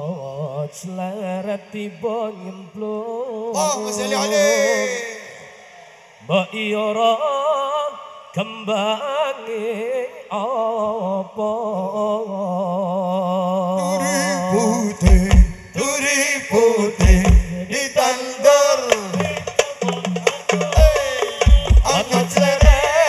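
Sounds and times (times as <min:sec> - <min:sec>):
man singing with vibrato: 0:00.0 - 0:23.0
deep drum beats: 0:15.0 - 0:15.7, 0:17.0 - 0:17.7, 0:18.9 - 0:23.0.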